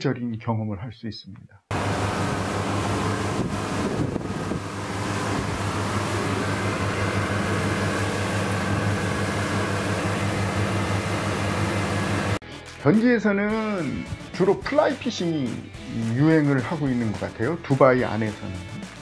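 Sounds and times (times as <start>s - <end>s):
wind: 1.7s - 12.0s
motorboat engine humming: 1.7s - 12.4s
water rushing: 1.7s - 12.4s.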